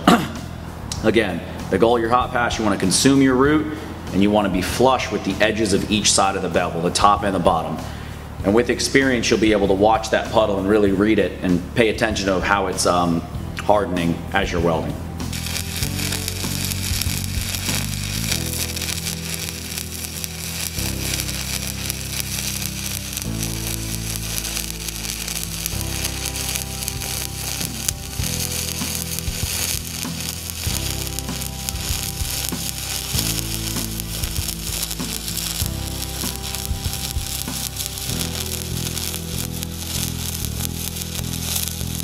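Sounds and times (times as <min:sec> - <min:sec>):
low steady tones: 0:15.3 - 0:42.0
welding arc crackling: 0:15.3 - 0:42.0.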